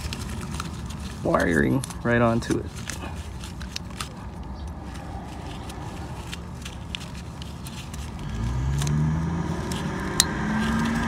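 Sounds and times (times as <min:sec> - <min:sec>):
vehicle engine rising in pitch: 0:08.2 - 0:11.0.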